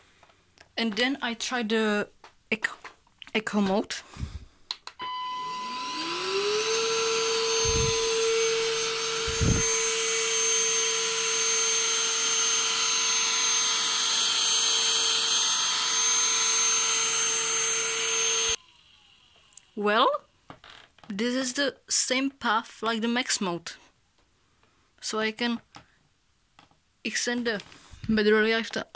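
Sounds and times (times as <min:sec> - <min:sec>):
vacuum motor whine: 0:05.0 - 0:19.5.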